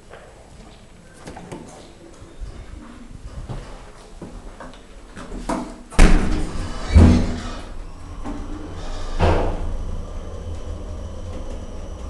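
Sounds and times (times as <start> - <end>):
heavy thud: 6.0 - 7.4, 9.1 - 9.8
elevator doors banging shut: 6.0 - 11.8
low steady hum: 6.0 - 12.0.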